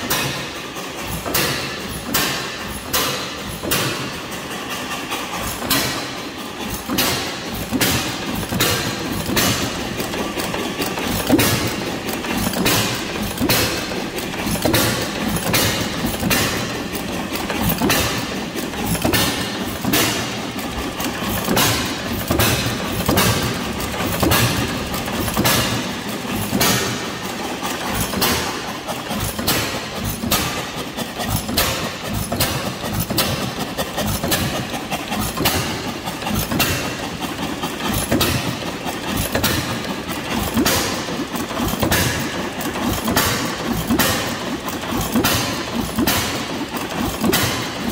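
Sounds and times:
old engine firing beats: 0:00.0 - 0:47.9.

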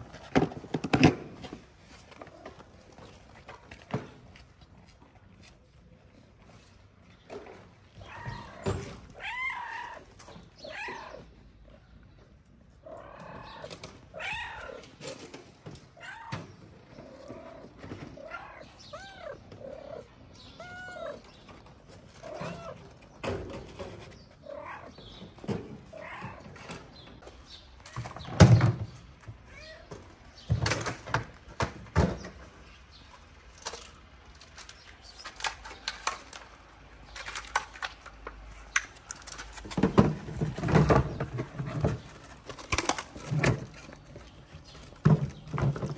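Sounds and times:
cats mewing: 0:07.6 - 0:27.2, 0:29.2 - 0:30.4.

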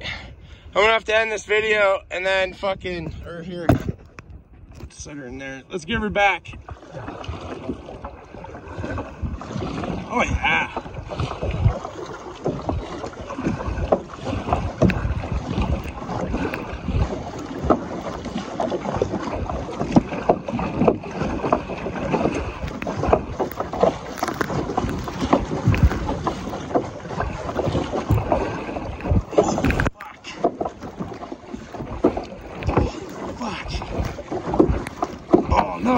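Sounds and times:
water splashing against kayak hull: 0:00.0 - 0:35.9
wind on microphone: 0:00.0 - 0:35.9
gear knocking and rattling: 0:19.8 - 0:28.4.

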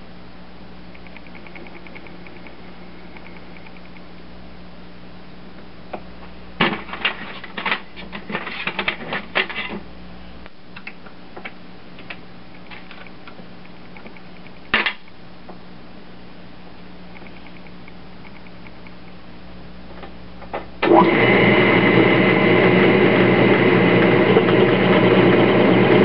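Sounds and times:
rapid metallic clicks: 0:00.9 - 0:04.1
metal lathe humming: 0:20.9 - 0:26.0.

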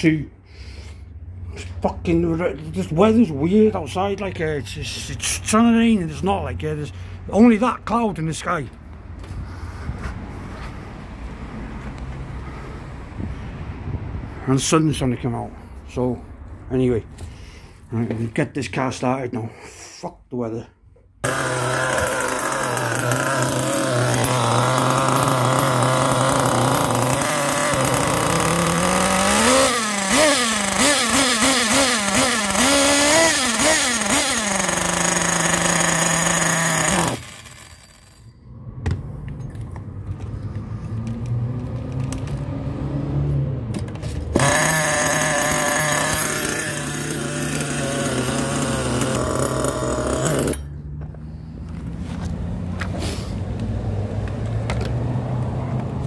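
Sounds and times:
small engine revving: 0:21.2 - 0:38.2, 0:40.2 - 0:56.0.

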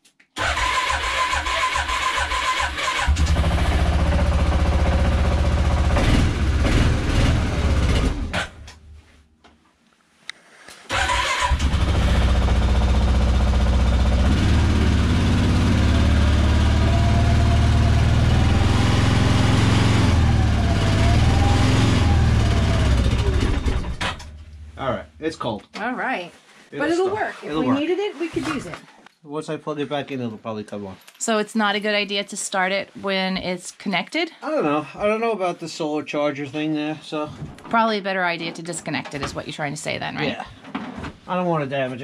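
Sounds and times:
quad bike engine running: 0:03.1 - 0:08.6, 0:11.5 - 0:24.3.

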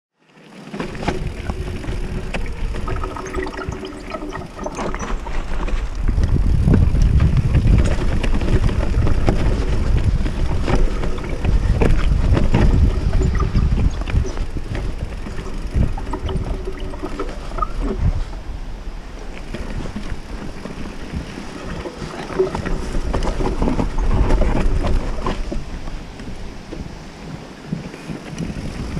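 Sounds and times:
tyres rumbling on dirt: 0:00.7 - 0:03.8, 0:05.1 - 0:18.3
wind buffeting microphone: 0:00.8 - 0:28.9
bike knocks and rattles: 0:05.1 - 0:17.8.

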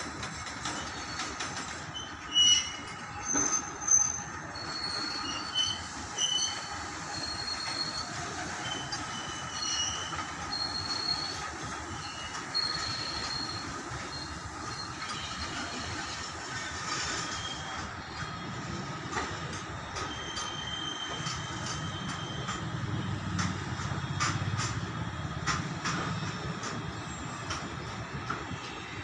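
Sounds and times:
train wheels rumbling on rail: 0:00.0 - 0:29.0
high-pitched wheel squeals: 0:00.7 - 0:18.5, 0:19.4 - 0:23.1.

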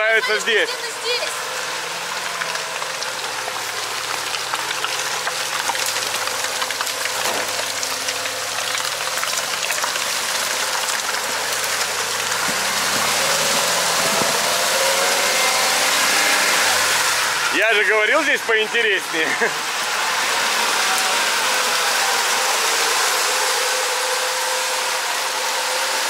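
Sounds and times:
off-road vehicle engine: 0:00.0 - 0:26.0
scattered crackles: 0:02.1 - 0:14.4.

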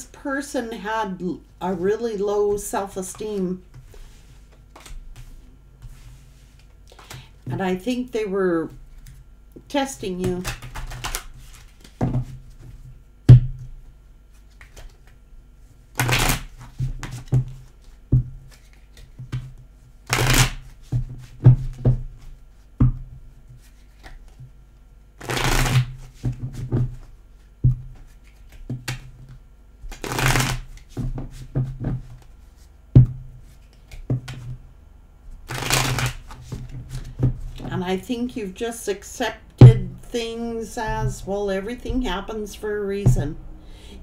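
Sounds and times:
cards shuffling: 0:03.1 - 0:07.3, 0:10.3 - 0:12.6, 0:14.3 - 0:15.2, 0:16.0 - 0:19.5, 0:20.1 - 0:21.3, 0:23.6 - 0:24.4, 0:25.2 - 0:27.0, 0:28.0 - 0:29.3, 0:29.9 - 0:32.7, 0:35.4 - 0:37.7
cards tapping and flicking: 0:04.5 - 0:05.3, 0:10.3 - 0:12.3, 0:14.5 - 0:15.2, 0:25.2 - 0:26.5, 0:28.0 - 0:32.2, 0:35.5 - 0:37.7.

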